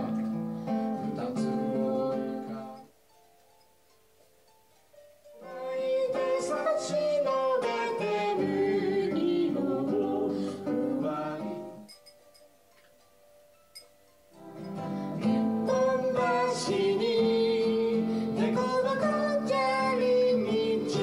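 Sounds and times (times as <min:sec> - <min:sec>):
person singing: 0:00.0 - 0:03.0, 0:05.4 - 0:11.9, 0:14.6 - 0:21.0
acoustic guitar: 0:00.0 - 0:21.0.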